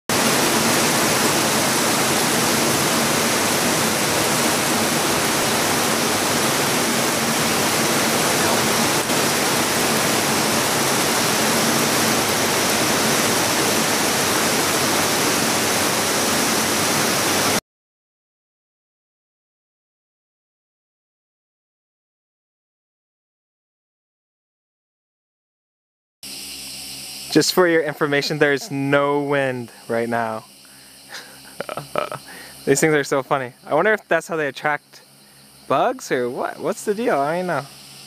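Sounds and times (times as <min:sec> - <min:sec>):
heavy rain on foliage: 0:00.1 - 0:17.6, 0:27.6 - 0:34.8, 0:35.4 - 0:38.0.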